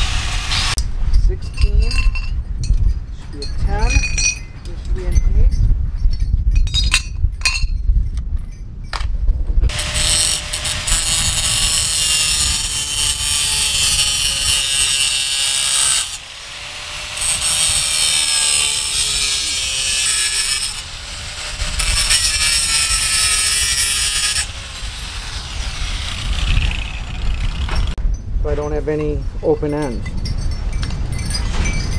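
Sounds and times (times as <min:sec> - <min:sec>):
angle grinder cutting steel: 0:00.0 - 0:00.8, 0:09.7 - 0:28.0.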